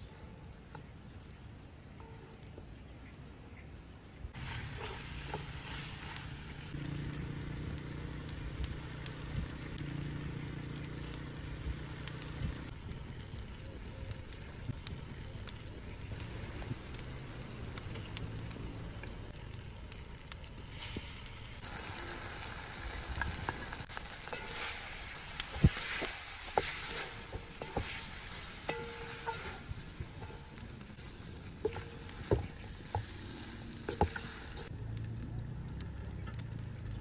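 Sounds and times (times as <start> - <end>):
food sizzling in metal pot: 4.4 - 12.8, 20.6 - 34.7.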